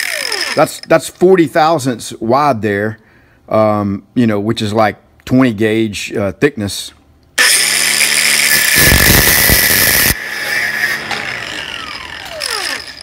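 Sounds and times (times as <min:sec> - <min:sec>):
angle grinder cutting metal: 0:00.0 - 0:00.9, 0:07.4 - 0:13.0.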